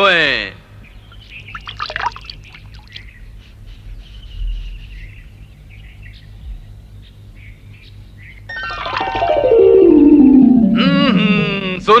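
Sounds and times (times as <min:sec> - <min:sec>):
water trickling: 0:01.2 - 0:03.1
water pouring and splashing: 0:01.5 - 0:03.0.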